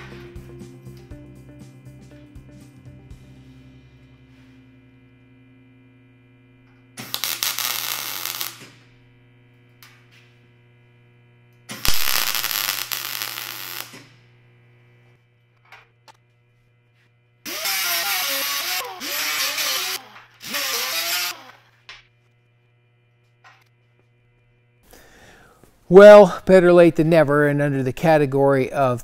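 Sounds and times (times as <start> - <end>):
steady hum: 0.0 - 29.0
welding arc noise bursts: 5.1 - 14.8, 17.4 - 21.9.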